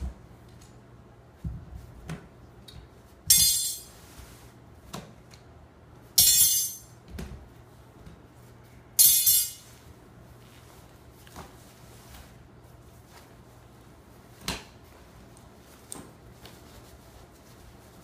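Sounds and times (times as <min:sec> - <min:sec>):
metal tubes clinking: 0:03.3 - 0:04.0, 0:06.2 - 0:07.0, 0:09.0 - 0:09.8.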